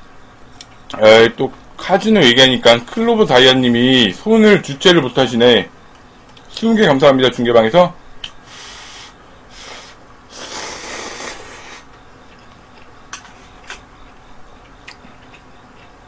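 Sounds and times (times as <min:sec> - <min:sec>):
person slurping noodles: 0:10.3 - 0:11.8.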